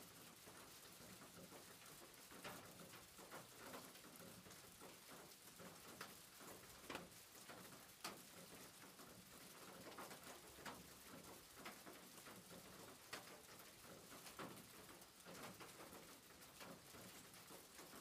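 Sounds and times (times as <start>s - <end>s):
faint room hiss: 0.0s - 18.0s.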